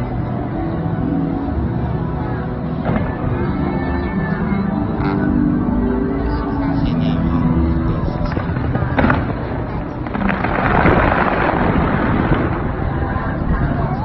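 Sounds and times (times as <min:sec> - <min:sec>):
fireworks rumbling: 0:02.8 - 0:03.6, 0:07.9 - 0:14.0
fireworks crackle: 0:08.2 - 0:13.9
fireworks sharp crack: 0:08.3 - 0:12.9.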